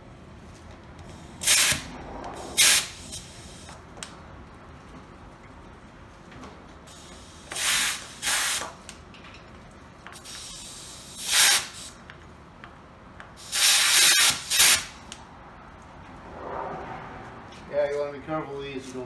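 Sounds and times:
compressed air hissing from air chuck: 0:01.1 - 0:03.8, 0:06.9 - 0:08.8, 0:10.2 - 0:12.0, 0:13.4 - 0:14.9.

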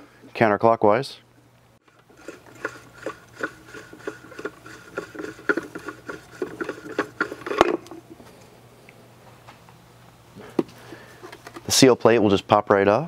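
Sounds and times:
small clicks and scraping: 0:01.8 - 0:08.5, 0:11.2 - 0:11.7.

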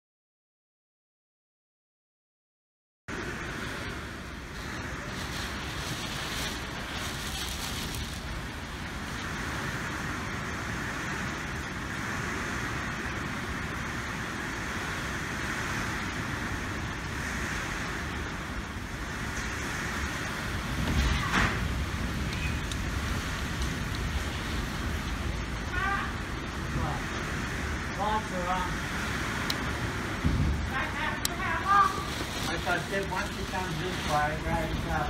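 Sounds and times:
hail and heavy rain falling: 0:04.5 - 0:10.0, 0:18.2 - 0:35.0.

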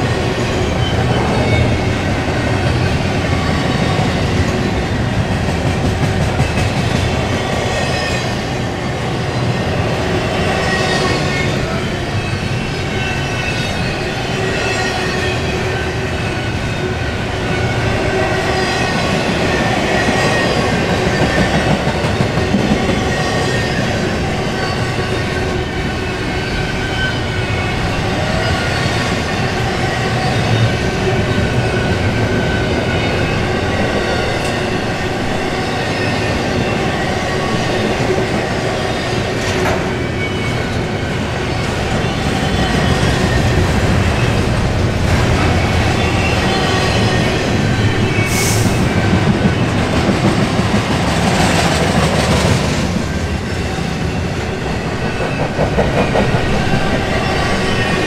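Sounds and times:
train wheels rumbling on rails: 0:00.0 - 0:58.0
train cars clanking: 0:17.6 - 0:58.0.

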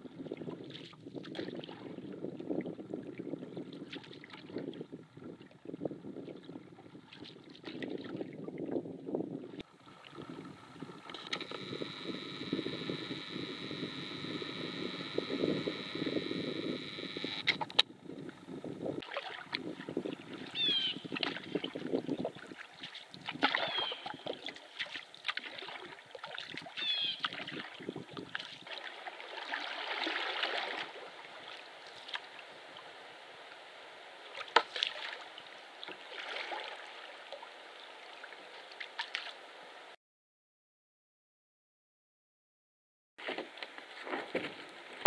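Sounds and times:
paddle strokes and splashes: 0:00.2 - 0:08.9, 0:19.0 - 0:40.0.

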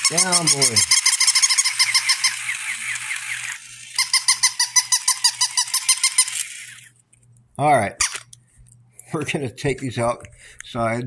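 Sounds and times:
toy puppies yapping electronically: 0:00.0 - 0:06.9.

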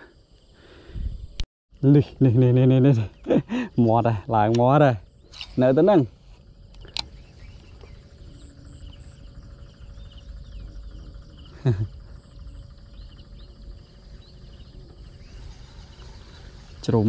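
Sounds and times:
insects trilling: 0:00.0 - 0:17.0
low rumble: 0:06.1 - 0:17.0.

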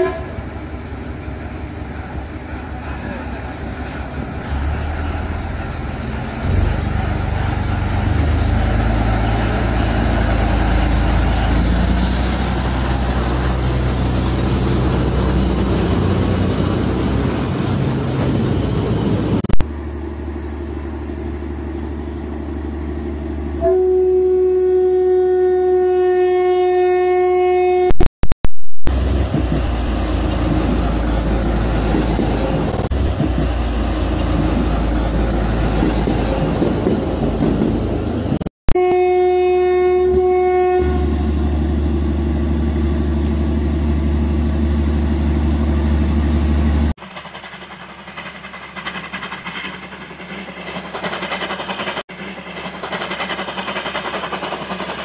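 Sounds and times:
train horn: 0:00.0 - 0:00.5, 0:23.6 - 0:28.0, 0:38.7 - 0:41.4
train rumbling: 0:00.0 - 0:25.8, 0:28.8 - 0:55.0.

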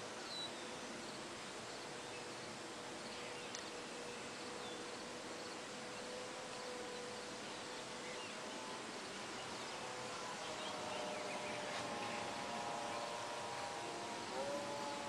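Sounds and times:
model airplane motor whine: 0:00.0 - 0:15.0.

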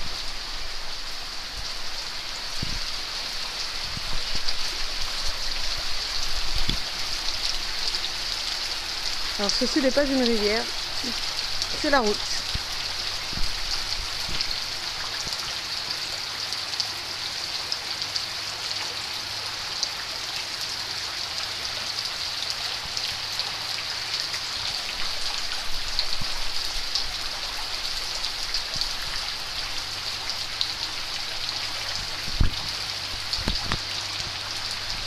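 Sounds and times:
close raindrop hits: 0:00.0 - 0:08.2, 0:08.9 - 0:15.5, 0:22.5 - 0:35.0
heavy rain hissing: 0:00.0 - 0:35.0.

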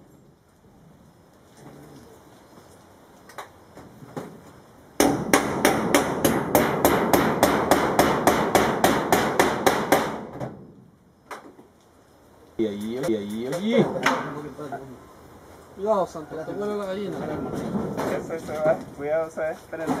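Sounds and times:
hammer striking metal roofing: 0:05.0 - 0:10.6.

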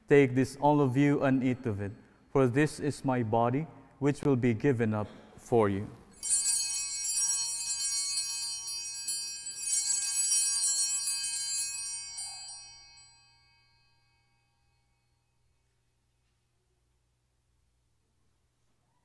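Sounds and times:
small hand bells ringing: 0:06.2 - 0:15.3.

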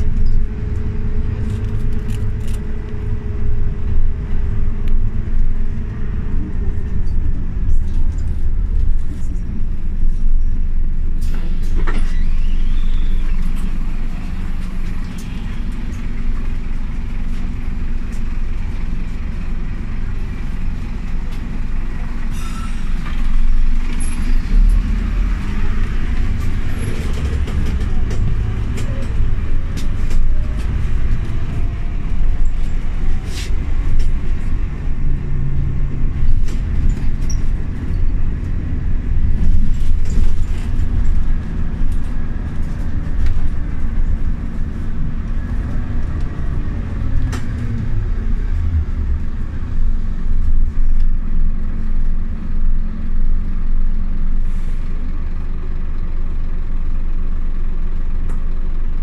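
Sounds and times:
bus engine rumble: 0:00.0 - 0:59.0
interior clicks and rattles: 0:25.9 - 0:46.4.

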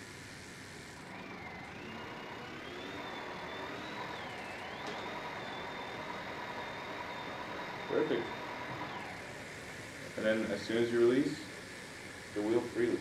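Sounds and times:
electric hub motor whine: 0:00.0 - 0:13.0
motor click: 0:04.2 - 0:05.2.

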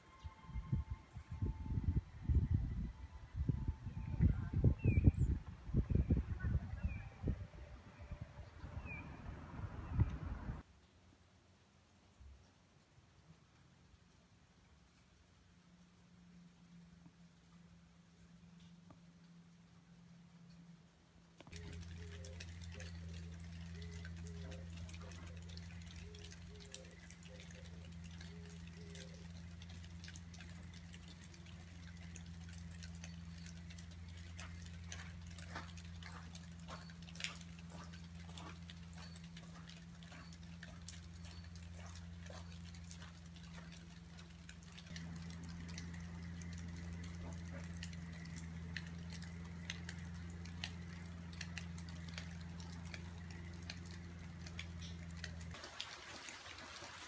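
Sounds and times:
steady low hum: 0:00.0 - 0:10.6, 0:15.9 - 0:55.6
raindrops pattering: 0:11.8 - 0:57.0.

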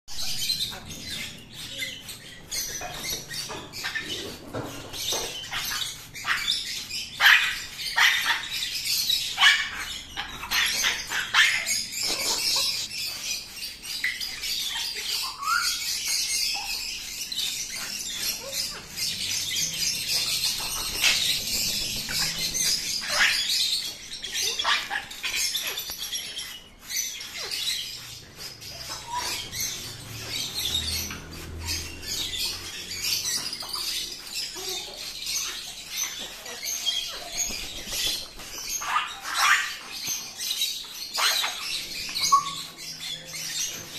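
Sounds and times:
parrot squawks and chirps: 0:00.1 - 0:43.9
wings flapping: 0:37.3 - 0:38.9.

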